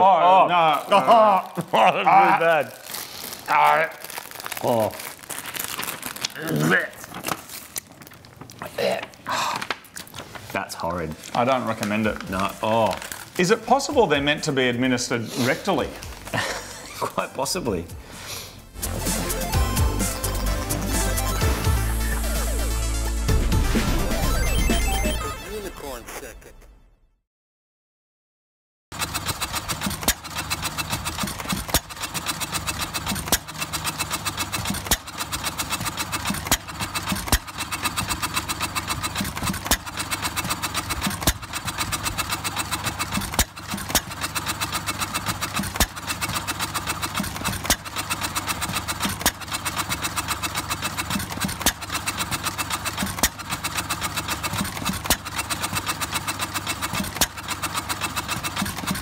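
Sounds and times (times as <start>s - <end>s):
stationary engine firing beat: 18.7s - 25.8s
fast light mechanical clatter: 28.9s - 59.0s.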